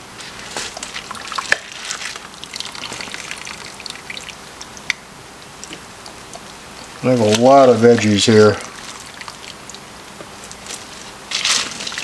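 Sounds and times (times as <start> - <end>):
broth trickling and dripping: 0.4 - 12.0
small splashes: 0.7 - 4.4.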